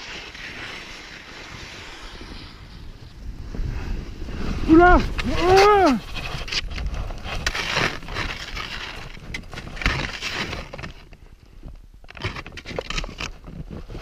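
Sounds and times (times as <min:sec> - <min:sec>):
snow and ice crunching: 0:00.0 - 0:11.2.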